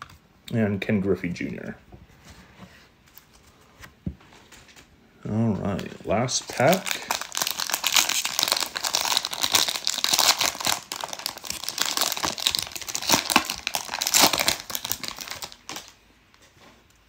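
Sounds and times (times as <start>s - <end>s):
plastic wrapper crinkling: 5.7s - 16.4s
plastic wrapper tearing: 5.8s - 16.0s.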